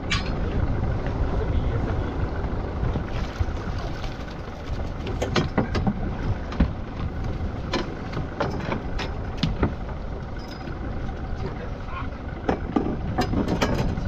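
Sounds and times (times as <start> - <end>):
boat engine rumble: 0.0 - 14.0
sharp knocks and clicks: 7.7 - 9.8.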